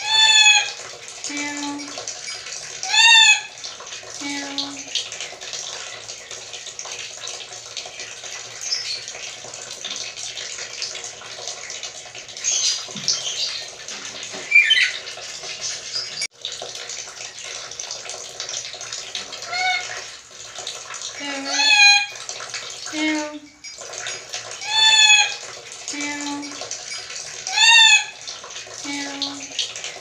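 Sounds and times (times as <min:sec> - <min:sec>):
parrot mewing calls: 0:00.0 - 0:00.8, 0:14.5 - 0:15.0, 0:19.4 - 0:20.0, 0:21.4 - 0:22.2, 0:24.6 - 0:25.4, 0:27.5 - 0:28.2.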